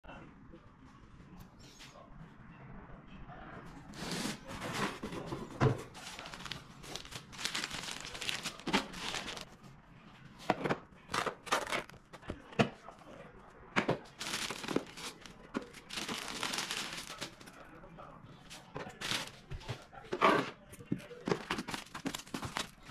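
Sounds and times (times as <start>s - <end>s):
plastic crinkling: 5.9s - 9.6s, 14.1s - 17.6s, 18.9s - 19.5s, 21.3s - 22.9s.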